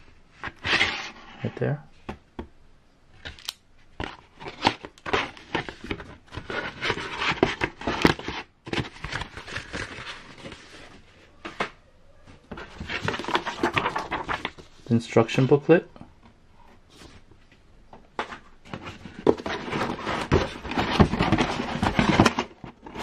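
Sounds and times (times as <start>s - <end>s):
cardboard scraping and rustling: 0.4s - 1.5s, 4.0s - 11.7s, 12.5s - 15.6s, 18.2s - 23.0s.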